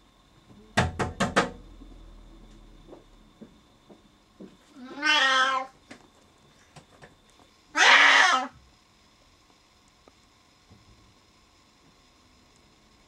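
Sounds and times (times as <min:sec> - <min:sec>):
cat meowing: 0:04.8 - 0:05.7, 0:07.8 - 0:08.5.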